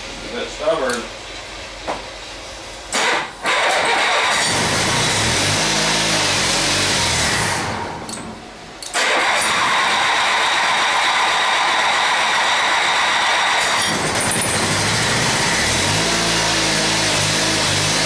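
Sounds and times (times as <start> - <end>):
lawn tractor engine starting: 2.9 - 7.8, 8.8 - 18.0.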